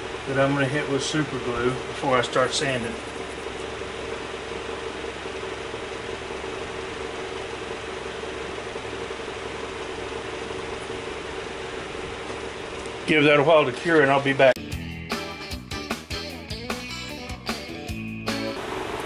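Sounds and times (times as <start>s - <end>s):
wood lathe running: 0.0s - 13.1s, 18.6s - 19.0s.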